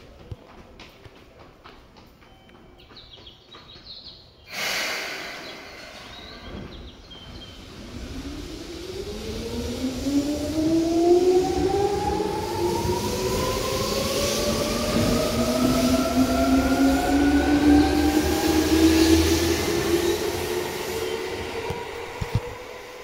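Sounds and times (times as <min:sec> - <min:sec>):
sudden burst of noise: 0:04.5 - 0:09.0
train running noise: 0:04.5 - 0:23.0
traction motor whine rising: 0:05.7 - 0:23.0.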